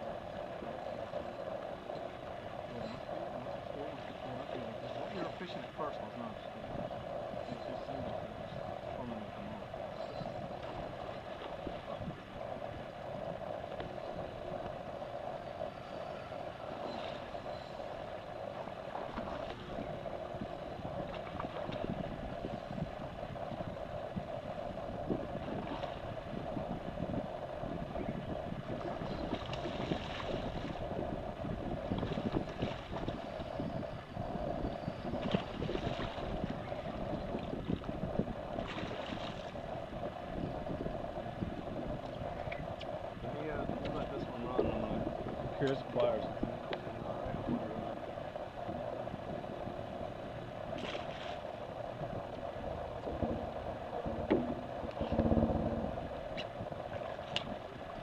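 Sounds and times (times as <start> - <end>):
constant hum: 0.0 - 58.0
wind and water noise: 0.0 - 58.0.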